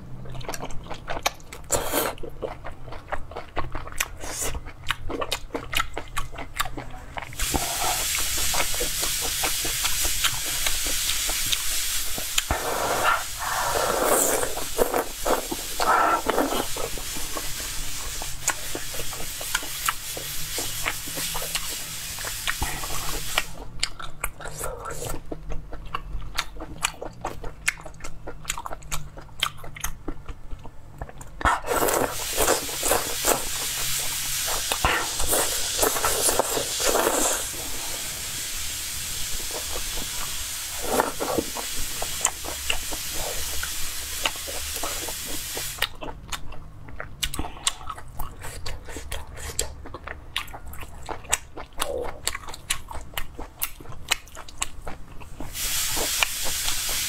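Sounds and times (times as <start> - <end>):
wet chewing and mouth clicks: 0.2 - 17.5, 18.1 - 37.6, 39.4 - 57.0
noodle slurping: 12.4 - 17.5, 31.5 - 38.0, 39.4 - 45.8.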